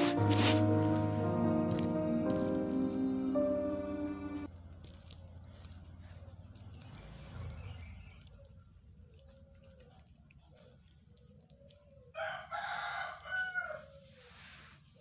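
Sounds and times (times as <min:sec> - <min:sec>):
cats chewing corn: 0:00.0 - 0:15.0
rooster crowing: 0:12.2 - 0:14.0.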